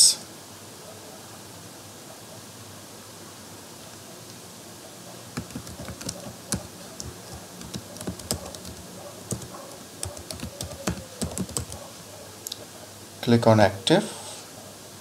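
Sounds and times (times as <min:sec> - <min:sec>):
faint steady hiss: 0:00.0 - 0:15.0
computer keyboard key clicks: 0:05.4 - 0:11.8.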